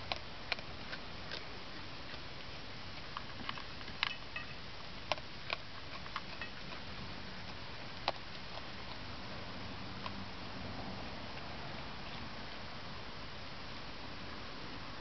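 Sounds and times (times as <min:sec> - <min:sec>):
kibble and claws clicking on metal bowl: 0:00.0 - 0:10.2
raccoon chewing kibble: 0:00.0 - 0:15.0.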